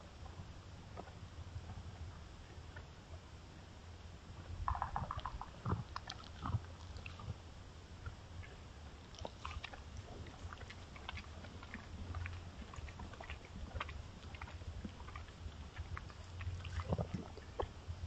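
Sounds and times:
low steady hum: 0.0s - 18.0s
small crackles and clicks: 4.4s - 7.4s, 8.0s - 17.8s.

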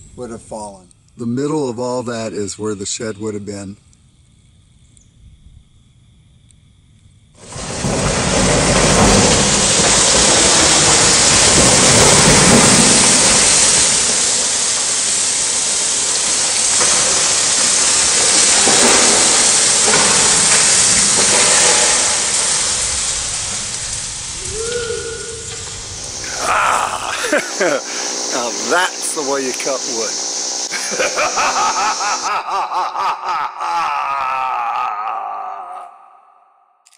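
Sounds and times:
loud rushing hiss: 7.4s - 35.5s.

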